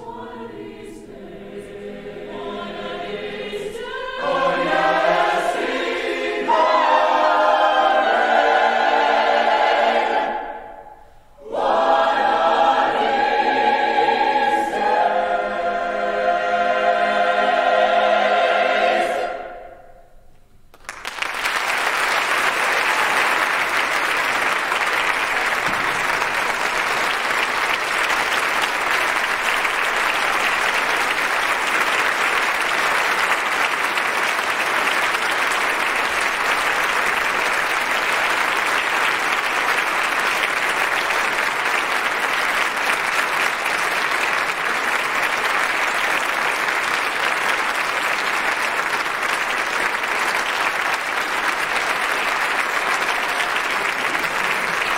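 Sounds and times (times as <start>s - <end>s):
audience applause: 20.7s - 54.9s.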